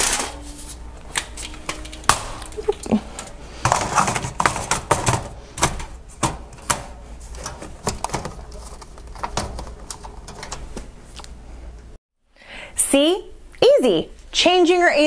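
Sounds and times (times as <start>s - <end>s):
air filter clicks and knocks: 3.2s - 10.9s.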